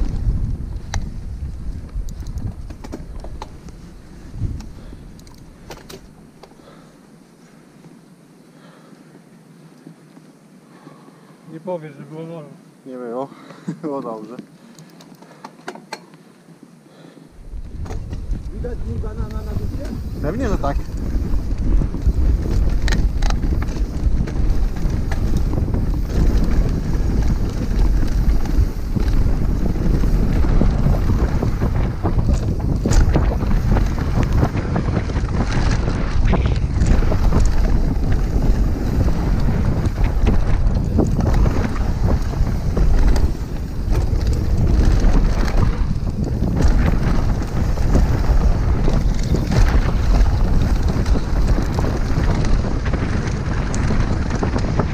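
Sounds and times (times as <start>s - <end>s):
bike rattles and clicks: 0.0s - 6.9s, 13.9s - 16.2s, 17.4s - 54.9s
wind rush on microphone: 0.0s - 6.9s, 17.0s - 54.9s
tyre rumble: 17.5s - 54.9s.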